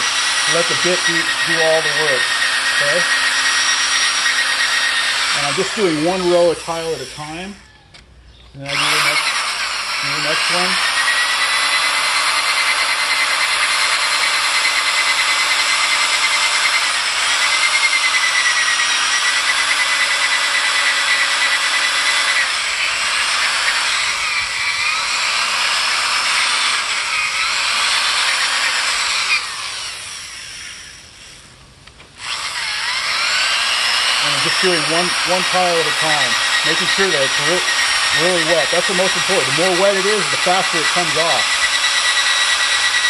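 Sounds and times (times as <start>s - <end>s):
abrasive wheel grinding wet tile: 0.0s - 7.5s, 32.8s - 43.0s
drill whining: 0.0s - 43.0s.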